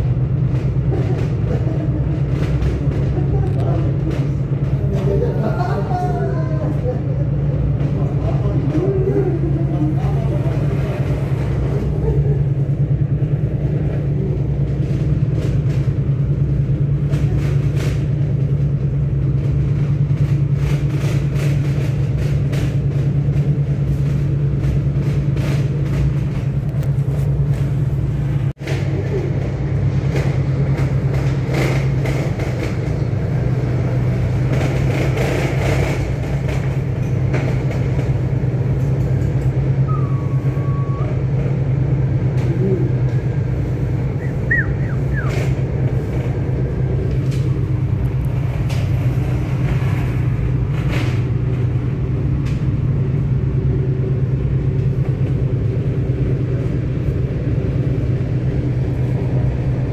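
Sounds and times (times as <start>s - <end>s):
cable car cabin droning hum: 0.0s - 59.9s.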